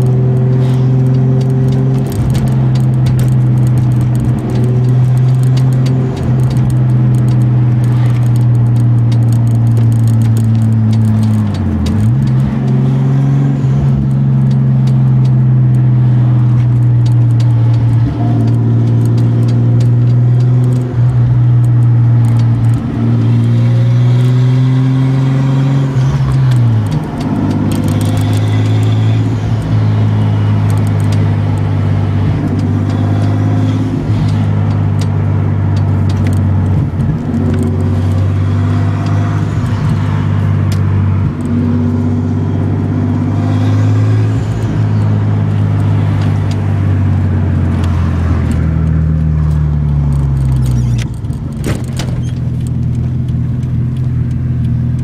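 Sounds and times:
car engine drone from inside cabin: 0.0 - 55.0.

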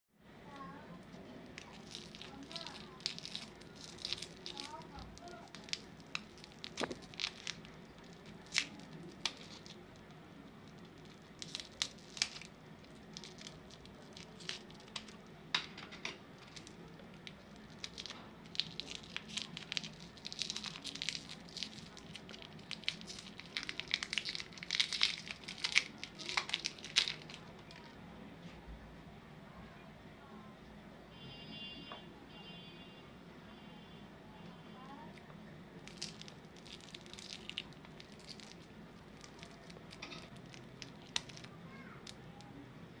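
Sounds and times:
foil wrapper crinkling: 1.4 - 15.3, 16.4 - 28.0, 35.8 - 42.2.

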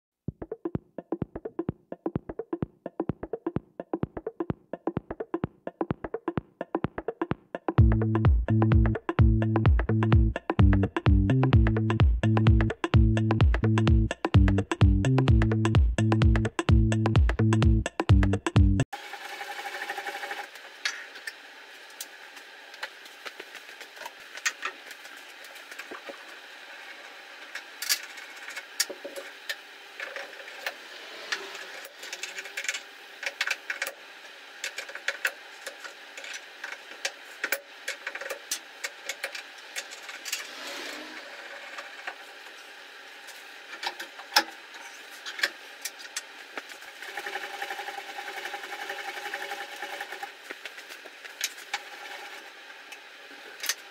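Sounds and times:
steady background hum: 19.0 - 53.9.

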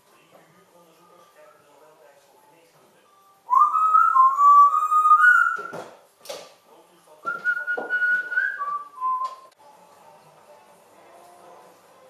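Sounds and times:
parrot whistling: 3.5 - 5.8.

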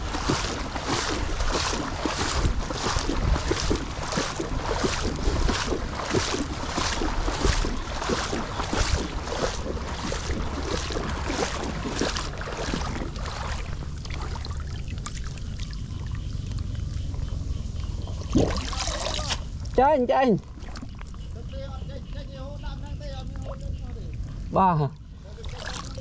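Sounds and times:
wind noise on microphone: 0.0 - 13.9
water washing: 0.0 - 17.0, 18.2 - 21.1, 23.1 - 26.0
footsteps splashing in water: 0.0 - 19.8, 20.4 - 21.4, 25.2 - 26.0.

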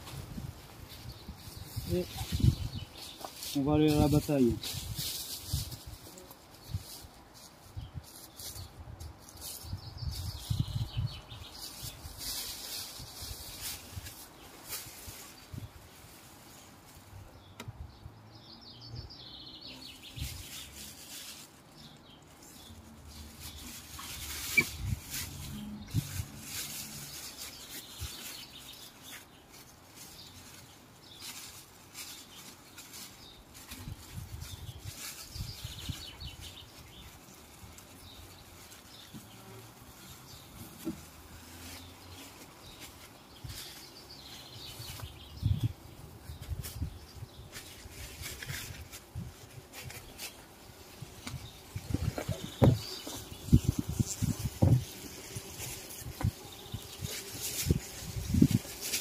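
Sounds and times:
plastic bag rustling: 20.0 - 45.2, 46.4 - 59.0
bumblebees buzzing: 48.8 - 59.0.

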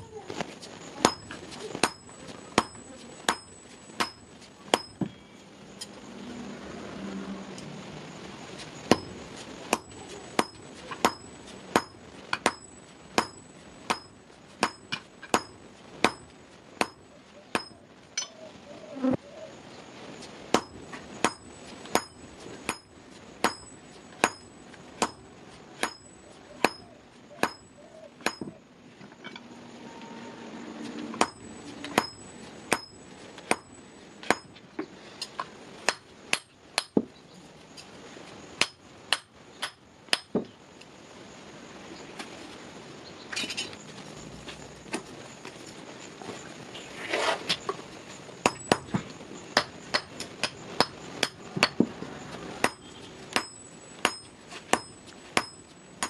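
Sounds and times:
hammer ringing on anvil: 25.8 - 28.6, 52.6 - 55.7.

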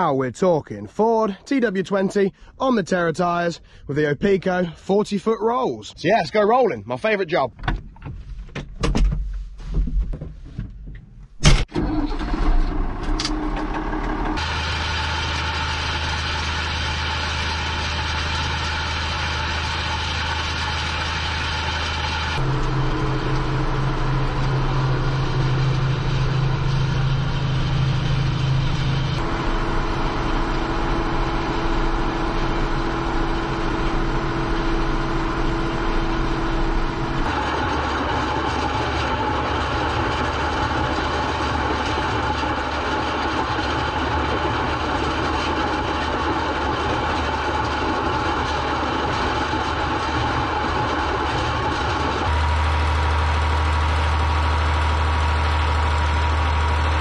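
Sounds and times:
tractor diesel engine under load: 11.4 - 57.0.

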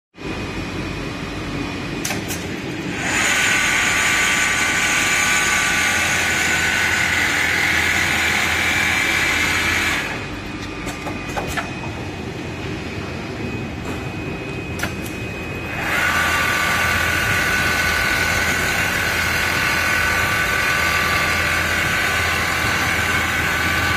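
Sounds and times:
machine hum: 0.2 - 23.9
sewing machine whirring: 2.8 - 10.4, 15.6 - 23.9.

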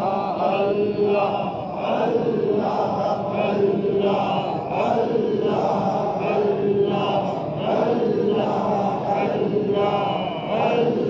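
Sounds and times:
men chanting together: 0.0 - 11.0.

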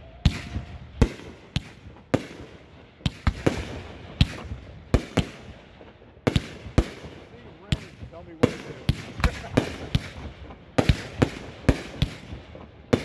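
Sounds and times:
firework bangs with echo: 0.1 - 13.0.

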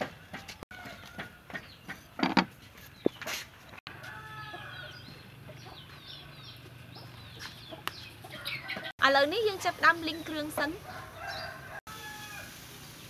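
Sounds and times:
sharp knocks: 0.0 - 2.5
chickens clucking and peeping: 0.0 - 13.0.

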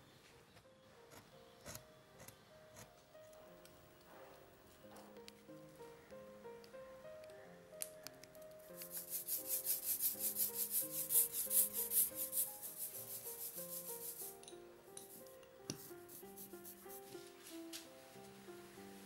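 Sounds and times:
soft background music: 0.0 - 19.0
ink roller rolling through sticky ink: 8.8 - 14.3.

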